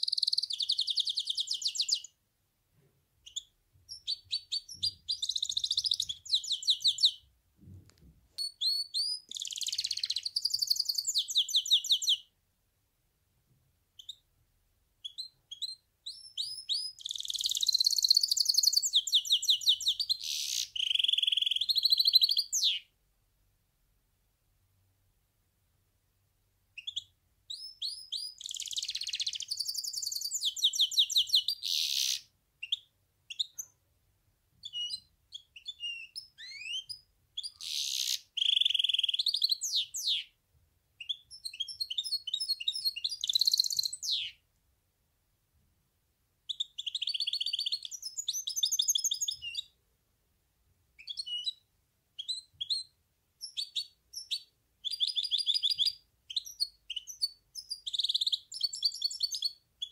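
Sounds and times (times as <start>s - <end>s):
bird singing trills: 0.0s - 2.1s, 3.2s - 7.2s, 8.4s - 12.2s, 15.0s - 22.8s, 26.8s - 33.7s, 34.6s - 40.3s, 41.0s - 44.4s, 46.5s - 49.7s, 52.2s - 59.9s.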